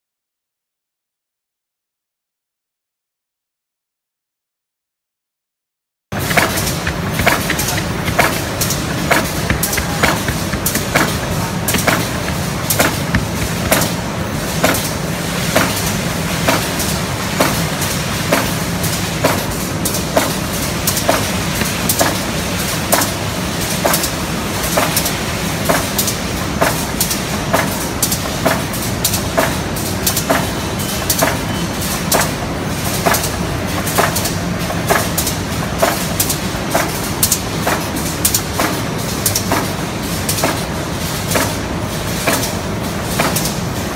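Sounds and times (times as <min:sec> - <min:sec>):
machine hum: 0:06.1 - 0:17.4.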